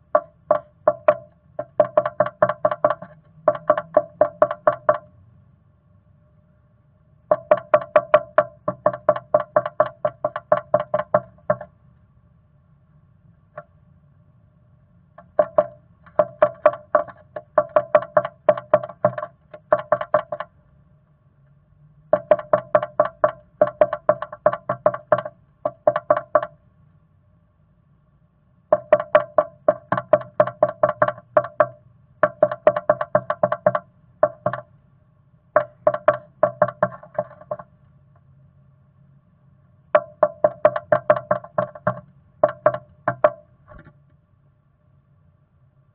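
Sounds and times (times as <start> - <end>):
bird pecking wood with hollow taps: 0.1 - 5.1, 7.3 - 11.7, 15.2 - 20.5, 22.1 - 26.6, 28.7 - 34.7, 35.6 - 37.7, 40.0 - 43.9.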